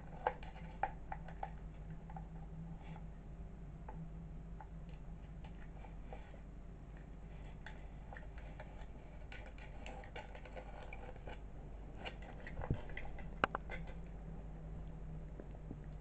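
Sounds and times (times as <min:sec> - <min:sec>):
light taps and scratches: 0:07.0 - 0:11.4, 0:12.0 - 0:14.1.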